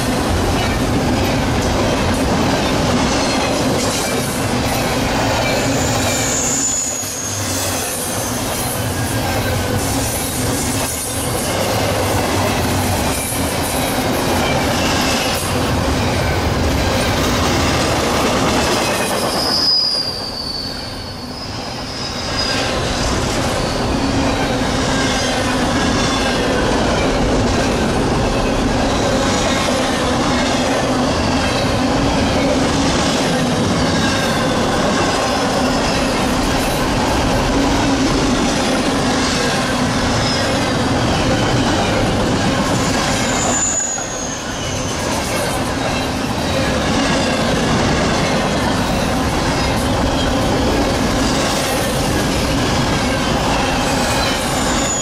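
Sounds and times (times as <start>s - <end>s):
train wheels rumbling and rattling: 0.0s - 55.0s
high wheel squeals: 4.1s - 11.6s, 18.6s - 26.4s, 39.7s - 47.4s, 52.0s - 55.0s.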